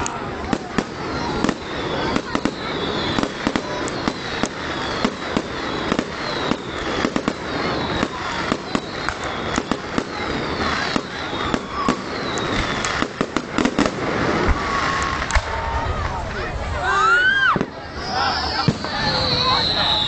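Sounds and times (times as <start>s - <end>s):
descending firework whistles: 0.0s - 20.0s
firework bangs and crackling: 0.0s - 20.0s.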